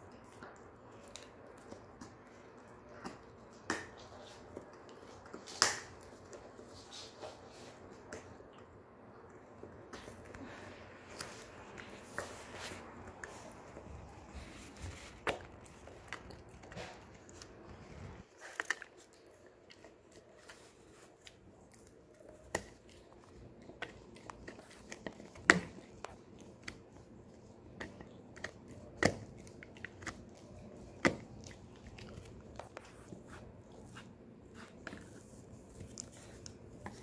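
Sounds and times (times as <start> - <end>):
dog gnawing on horn: 11.1 - 37.0.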